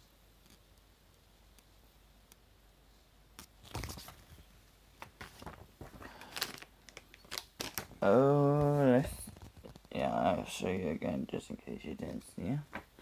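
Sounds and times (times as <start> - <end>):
plastic snack packet crinkling: 5.0 - 8.0.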